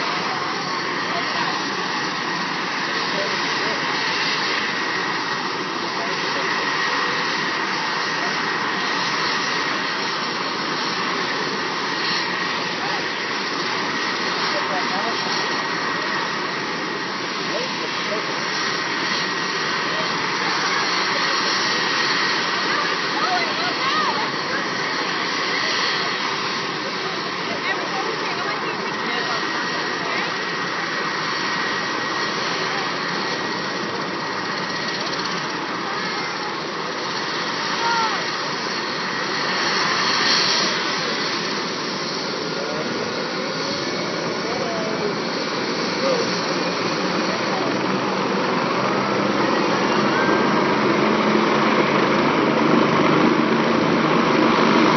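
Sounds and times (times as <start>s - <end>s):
helicopter rotor running: 0.0s - 54.9s.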